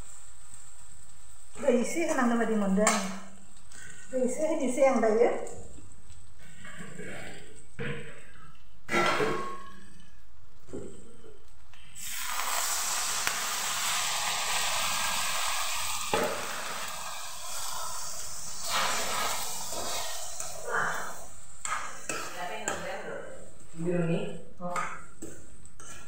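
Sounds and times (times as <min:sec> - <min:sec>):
water sizzling in hot pan: 0:00.0 - 0:06.6, 0:11.9 - 0:23.8.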